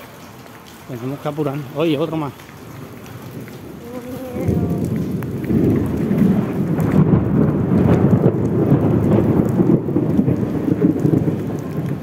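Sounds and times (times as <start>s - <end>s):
rain falling on street: 0.0s - 12.0s
thunder rumbling: 2.6s - 12.0s.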